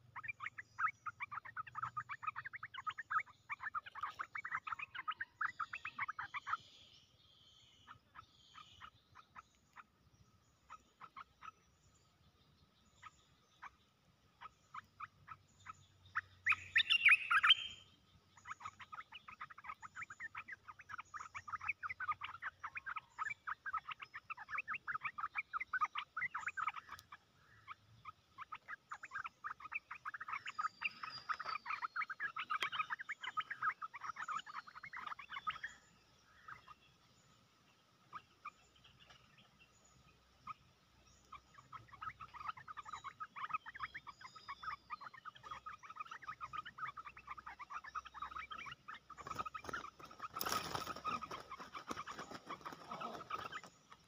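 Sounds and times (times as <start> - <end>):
birds chattering harshly: 0.0 - 54.0.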